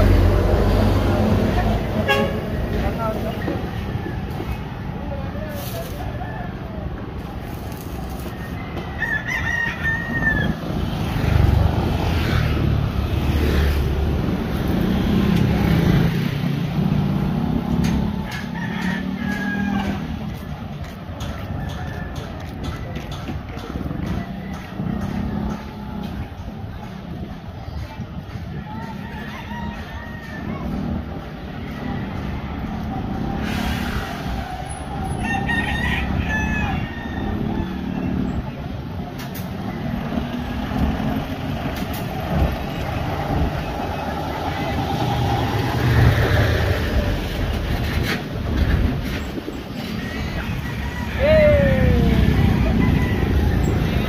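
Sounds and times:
street noise: 0.0s - 54.0s
rooster crowing: 8.5s - 10.8s, 18.2s - 20.2s, 34.9s - 38.1s, 49.9s - 54.0s.

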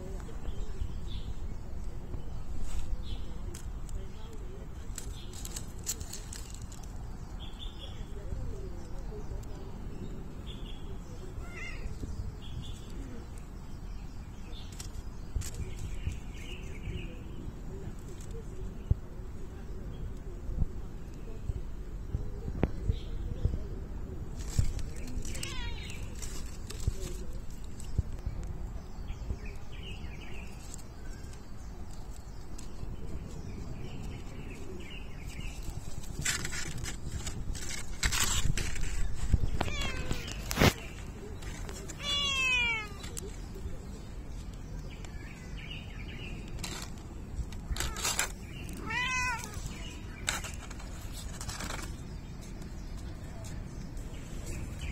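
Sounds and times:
noisy rustle: 0.0s - 54.9s
small birds chirping: 0.0s - 54.9s.

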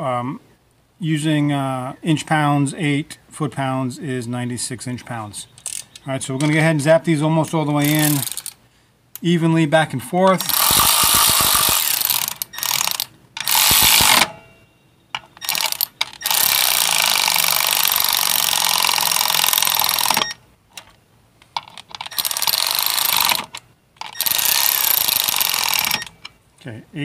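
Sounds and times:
electric ratchet whirring: 7.8s - 8.6s, 10.4s - 14.4s, 15.4s - 20.4s, 22.1s - 26.2s.

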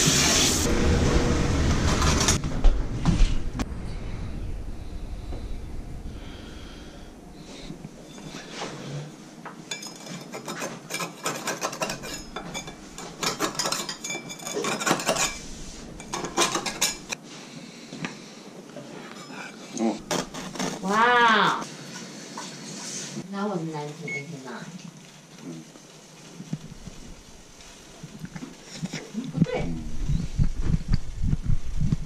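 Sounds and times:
metal utensil scraping skillet: 9.7s - 17.2s.

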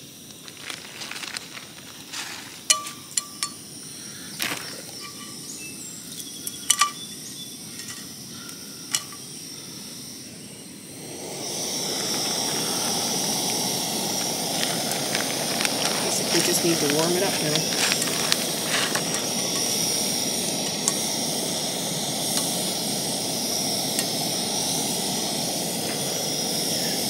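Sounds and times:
hiss from frying pan: 0.0s - 27.0s
light clicks and clinks: 2.7s - 3.6s, 6.2s - 8.1s.

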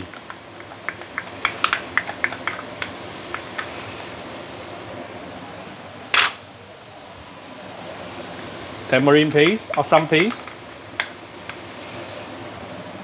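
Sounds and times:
wooden spatula clicking and scraping: 0.0s - 3.8s
chili paste sizzling in oil: 0.0s - 5.5s, 7.2s - 13.0s.

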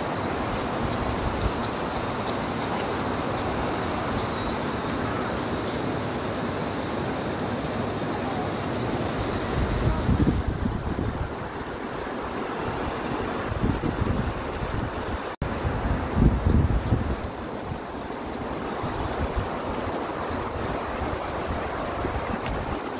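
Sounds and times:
steady rushing outdoor noise: 0.0s - 22.9s
wind buffeting microphone: 9.1s - 22.9s.

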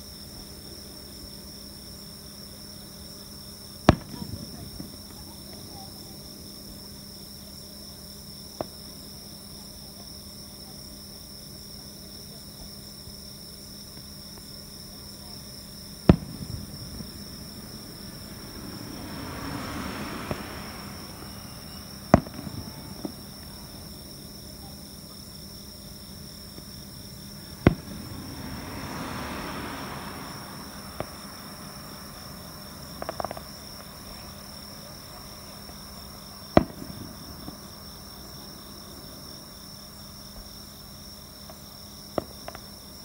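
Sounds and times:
insects chirping: 0.0s - 43.0s
distant fireworks booming: 1.6s - 9.5s, 12.0s - 43.0s
fireworks pops and crackles: 3.8s - 6.3s, 13.9s - 37.8s, 41.4s - 42.9s.

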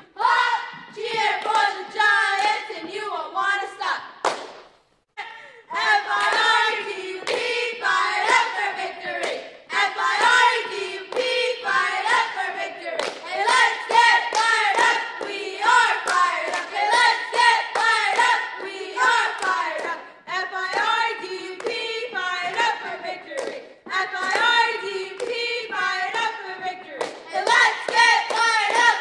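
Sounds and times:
cheerleaders chanting in unison: 0.0s - 4.3s, 5.3s - 29.0s
sharp hand claps: 4.2s - 4.8s, 27.0s - 28.9s.

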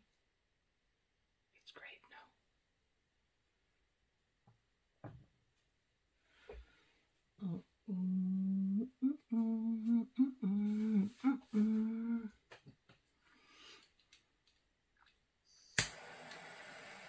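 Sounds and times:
woman humming a tune: 7.4s - 12.4s.

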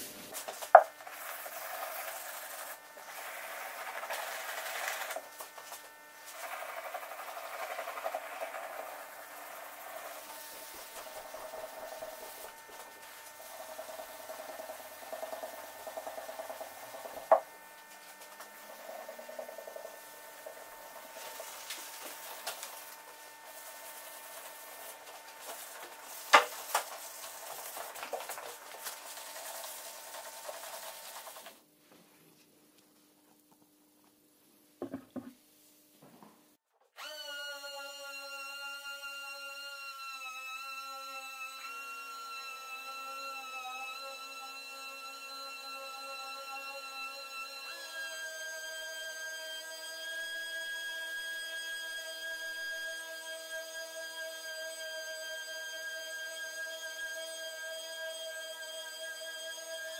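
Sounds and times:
hand sanding scratchy rubbing: 0.0s - 17.3s, 18.1s - 31.6s
abrasive pad scuffing paint: 21.1s - 32.5s.

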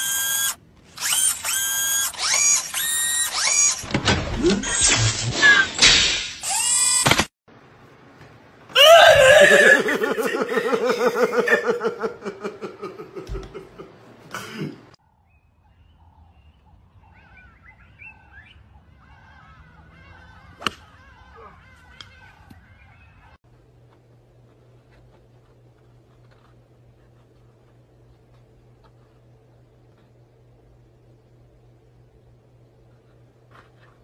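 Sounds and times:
person laughing hard: 8.8s - 14.8s
faint chirping: 15.0s - 23.4s.

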